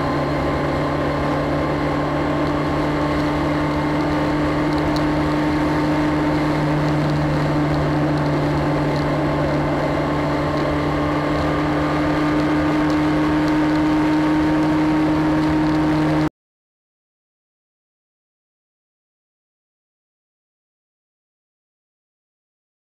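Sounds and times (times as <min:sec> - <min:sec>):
motorcycle engine cruising: 0:00.0 - 0:16.3
wind and road noise: 0:00.0 - 0:16.3.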